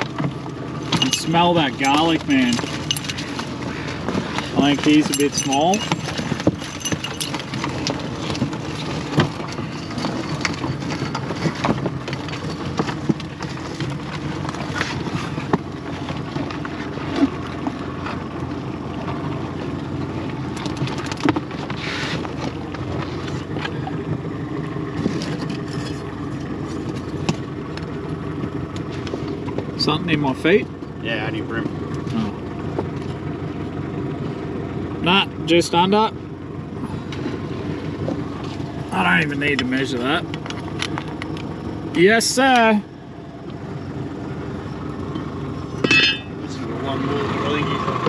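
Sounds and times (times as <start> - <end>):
outboard motor running: 0.0 - 48.0.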